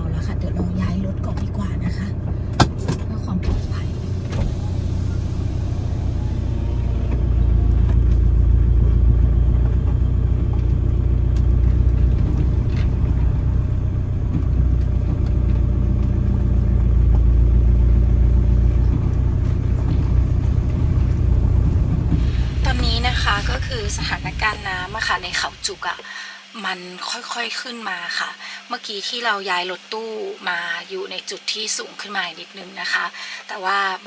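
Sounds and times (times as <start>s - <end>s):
van engine low rumble: 0.0s - 26.0s
steady hum: 0.0s - 34.0s.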